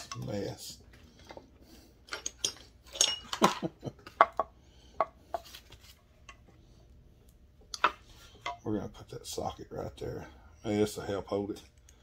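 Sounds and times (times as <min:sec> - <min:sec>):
tools clicking and clinking: 0:02.0 - 0:04.4.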